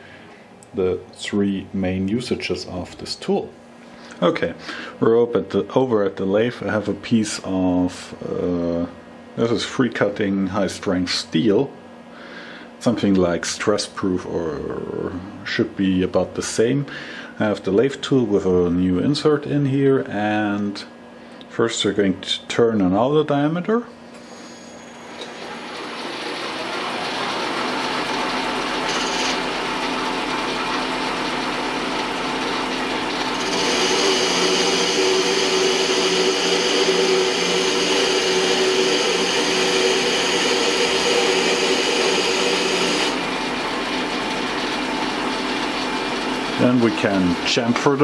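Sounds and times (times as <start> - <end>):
lathe spindle running: 25.0 - 48.0
lathe tool cutting steel: 25.1 - 47.7.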